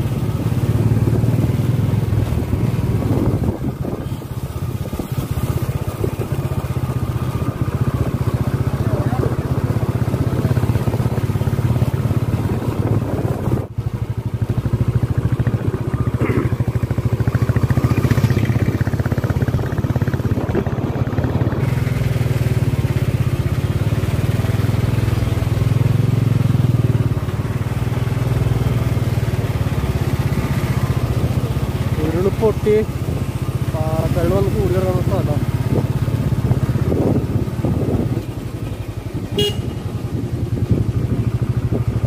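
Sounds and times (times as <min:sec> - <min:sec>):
vehicle engine running: 0:00.0 - 0:42.0.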